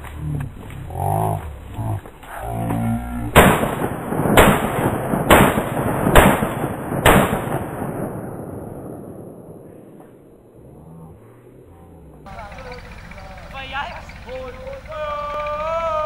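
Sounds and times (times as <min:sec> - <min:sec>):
gunshots with long echo: 0:03.3 - 0:10.6.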